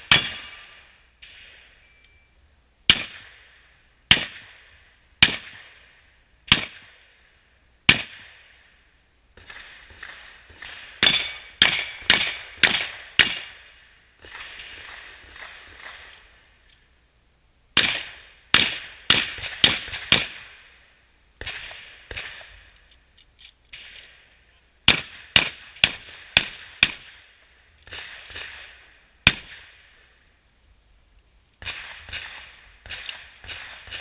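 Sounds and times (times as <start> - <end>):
shotgun shots echoing: 0.0 - 1.7, 2.9 - 5.9, 6.5 - 7.0, 7.9 - 8.6, 9.4 - 16.4, 17.8 - 20.7, 21.4 - 22.6, 24.9 - 29.9, 31.6 - 34.0.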